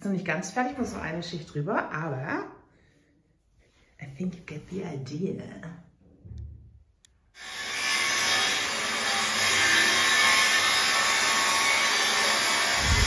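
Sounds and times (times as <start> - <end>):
power tool on wood: 7.4 - 13.0.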